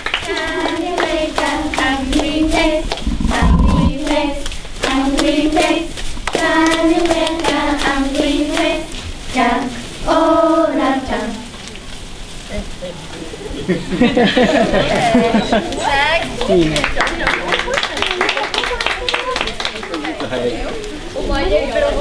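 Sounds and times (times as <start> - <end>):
hands clapping: 0.0 - 8.0, 15.6 - 21.0
children singing: 0.0 - 11.4.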